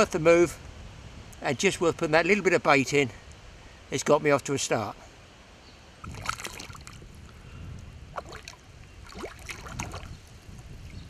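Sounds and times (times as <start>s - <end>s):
fish splashing: 6.0s - 7.0s, 8.1s - 10.1s
water splashing around hands: 6.0s - 7.0s, 8.1s - 10.2s.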